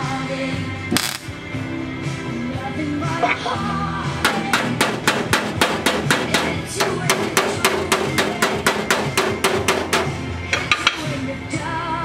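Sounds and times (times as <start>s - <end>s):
background music: 0.0s - 12.0s
hammer striking sheet metal: 4.2s - 11.0s.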